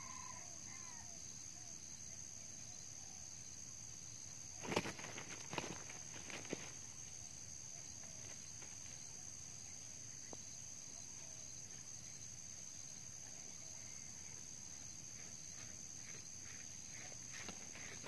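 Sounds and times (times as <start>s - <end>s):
insects droning: 0.0s - 18.0s
rooster scuffling in grass: 4.6s - 6.9s.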